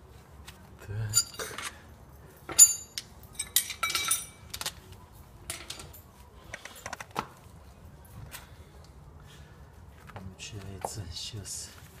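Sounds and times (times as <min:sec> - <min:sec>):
metal hand tools clinking: 0:01.1 - 0:04.7.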